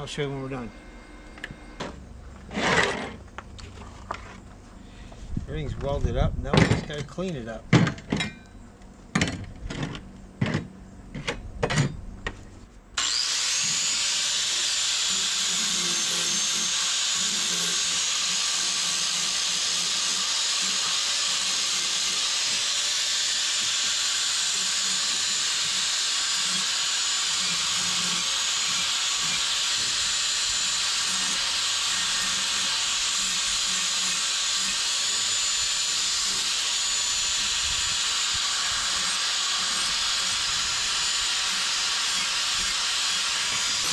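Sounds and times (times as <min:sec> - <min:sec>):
angle grinder grinding steel: 0:13.0 - 0:43.9.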